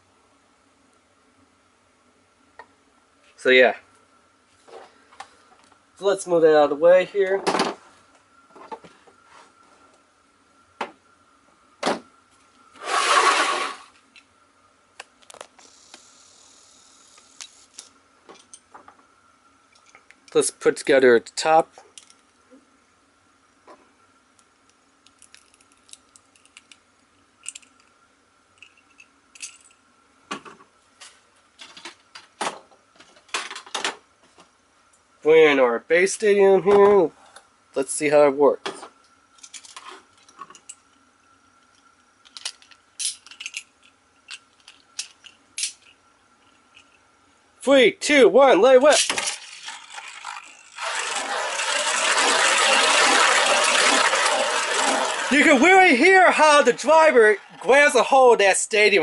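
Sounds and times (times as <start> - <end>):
spinning top grinding on plastic: 12.8 - 13.9, 49.0 - 55.8.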